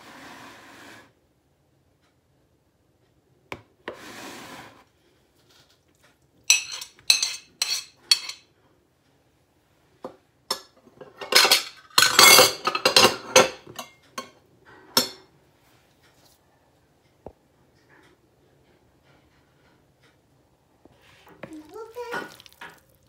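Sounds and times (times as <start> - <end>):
spoon knocking and scraping bowl: 6.5 - 8.5, 10.1 - 15.3, 20.8 - 23.0.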